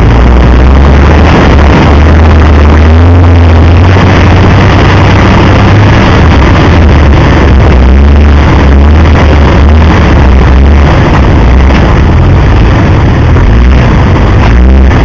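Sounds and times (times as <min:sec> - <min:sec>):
engine rumbling at low speed: 0:00.0 - 0:15.0.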